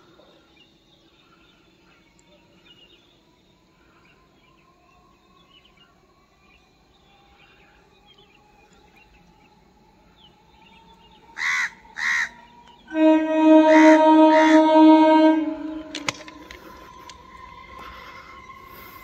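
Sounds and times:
faint electric train whine: 0.0 - 19.0
crow cawing: 11.4 - 12.5.

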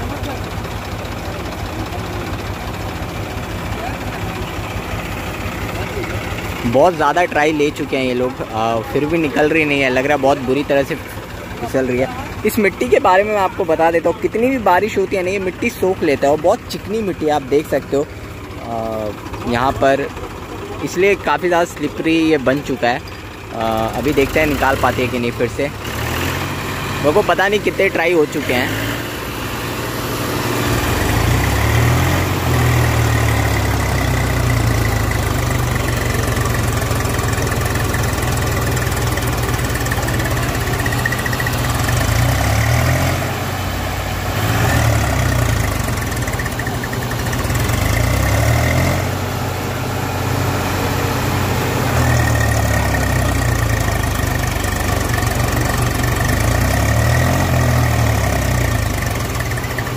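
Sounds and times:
tractor diesel engines revving: 0.0 - 59.9.

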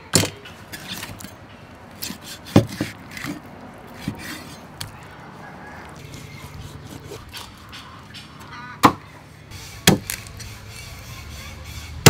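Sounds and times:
soft cutting and scraping: 1.9 - 8.4, 9.6 - 12.0
cleaver chopping on wooden block: 2.0 - 3.4, 9.8 - 10.3.

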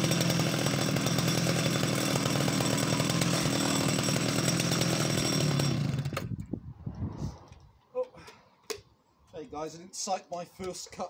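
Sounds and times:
chainsaw sawing through log: 0.0 - 6.4.

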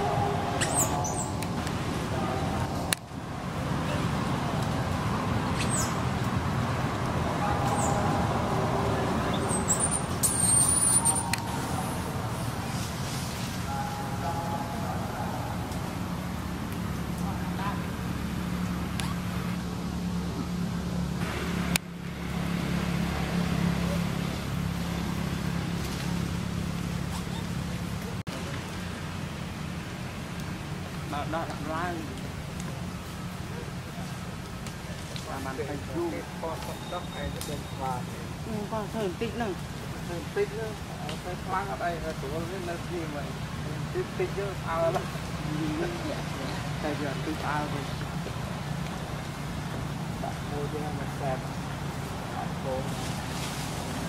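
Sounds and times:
wavering high call: 0.0 - 1.6, 7.4 - 12.6, 13.6 - 15.8
low engine hum: 0.0 - 36.6
road traffic rumble: 0.0 - 54.0
short high-pitched squeaks: 9.4 - 12.1
broad hiss: 11.5 - 13.7.

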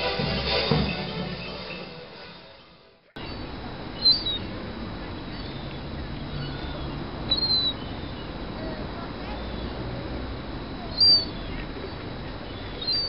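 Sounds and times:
steady background noise: 0.0 - 13.0
gull high-pitched calls: 3.2 - 8.5, 10.8 - 13.0.

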